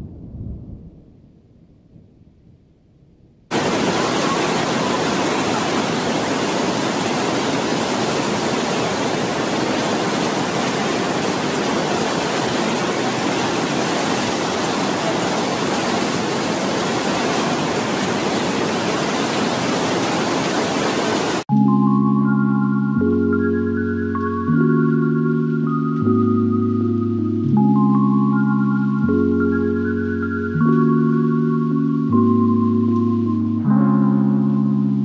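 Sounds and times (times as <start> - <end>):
faint low rumble: 0.0 - 3.5
floodwater rushing over boulders: 3.5 - 21.5.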